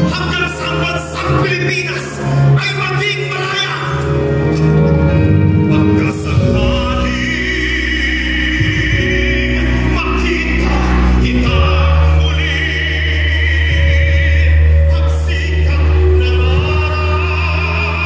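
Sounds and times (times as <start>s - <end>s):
loud backing track: 0.0s - 18.0s
voices singing in chorus: 7.0s - 18.0s.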